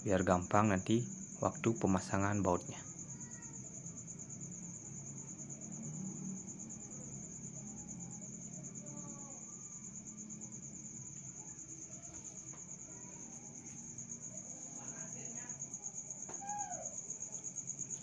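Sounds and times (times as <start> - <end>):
insect trilling high: 15.9 - 17.5.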